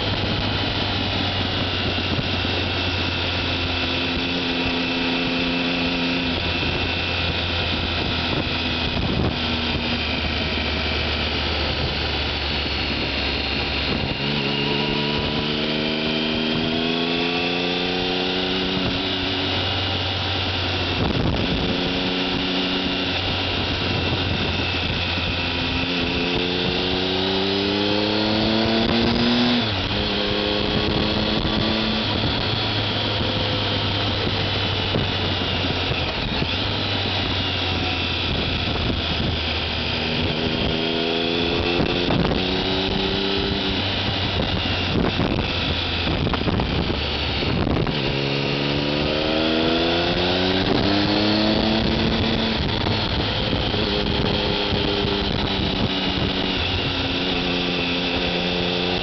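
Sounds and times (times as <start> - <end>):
motorcycle engine revving: 0.0 - 59.0
wind rush: 0.0 - 59.0.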